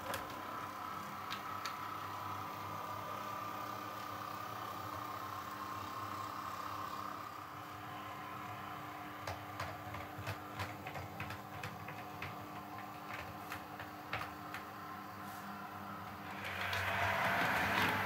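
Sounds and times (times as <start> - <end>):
model train wheels clicking: 16.2 - 18.0.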